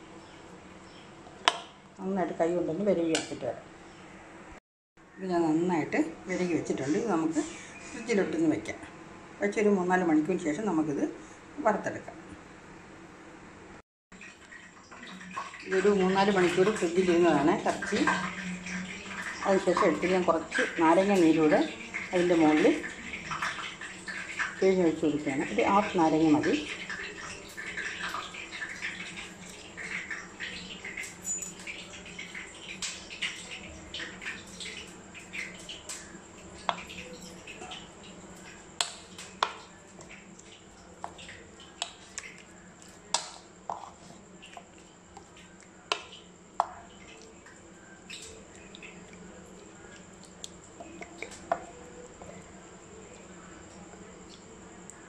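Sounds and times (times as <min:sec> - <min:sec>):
faint steady hum: 0:00.0 - 0:55.0.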